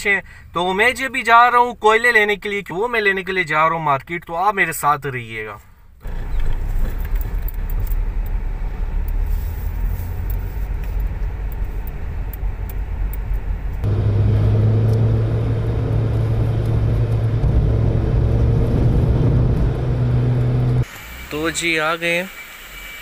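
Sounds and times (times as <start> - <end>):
road rumble: 0.0 - 2.8, 5.5 - 20.9
low engine hum: 6.0 - 20.9.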